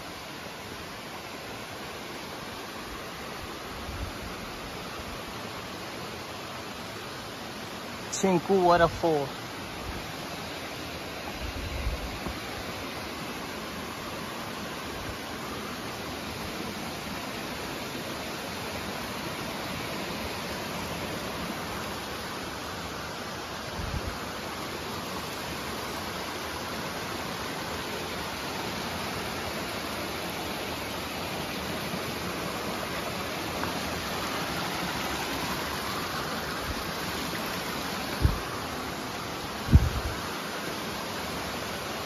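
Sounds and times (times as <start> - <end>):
waterfall rushing: 0.0 - 42.0.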